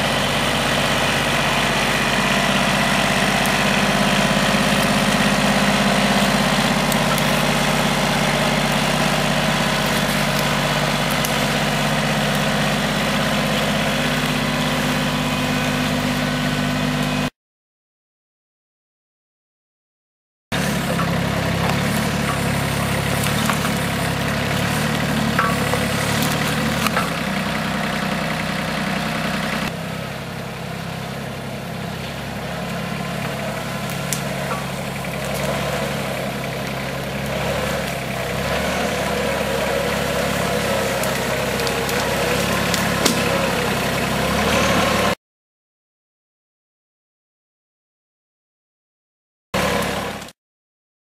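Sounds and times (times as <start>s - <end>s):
tractor engine running: 0.0s - 17.3s, 20.5s - 45.2s, 49.6s - 50.3s.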